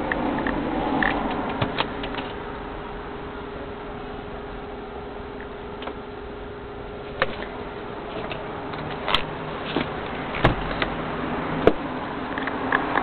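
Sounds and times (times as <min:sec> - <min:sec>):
car cabin hum: 0:00.0 - 0:13.0
sharp clicks and knocks: 0:08.2 - 0:11.0, 0:11.6 - 0:13.0.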